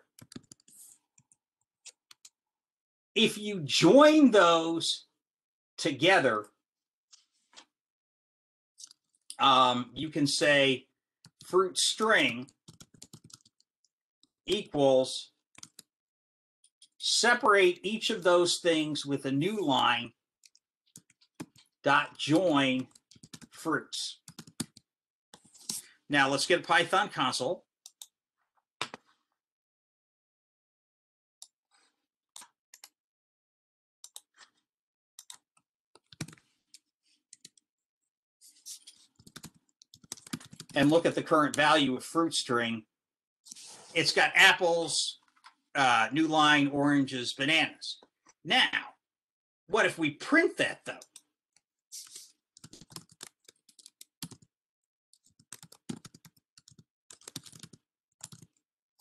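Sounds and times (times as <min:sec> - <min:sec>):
typing on computer keyboard: 0:00.1 - 0:02.3, 0:12.4 - 0:13.7, 0:15.6 - 0:15.9, 0:20.4 - 0:21.7, 0:22.8 - 0:23.5, 0:24.2 - 0:25.8, 0:36.0 - 0:36.4, 0:39.0 - 0:41.0, 0:52.6 - 0:54.5, 0:55.1 - 0:58.6
computer mouse clicks: 0:00.1 - 0:02.4, 0:52.0 - 0:54.5, 0:55.2 - 0:58.6.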